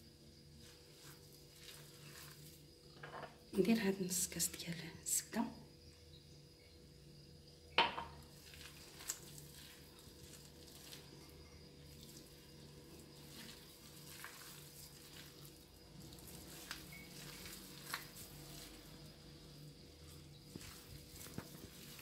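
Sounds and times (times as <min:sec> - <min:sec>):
hand kneading crumbly mix: 0:00.0 - 0:03.0, 0:08.2 - 0:22.0.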